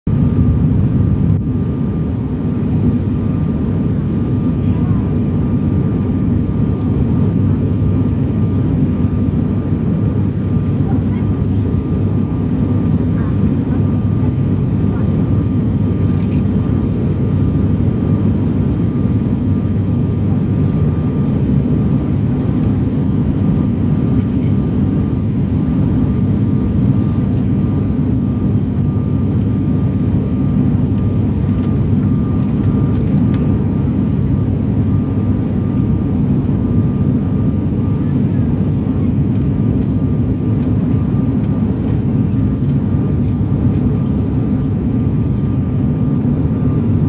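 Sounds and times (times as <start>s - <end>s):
aeroplane cabin drone: 0.1s - 47.0s.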